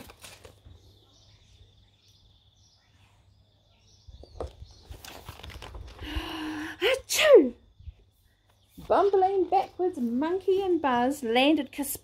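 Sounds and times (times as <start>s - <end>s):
book rustling and tapping: 0.0s - 0.8s, 4.2s - 6.0s.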